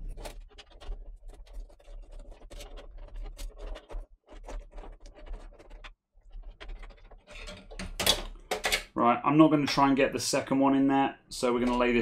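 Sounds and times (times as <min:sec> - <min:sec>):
cables scratching and rubbing: 0:00.0 - 0:08.1.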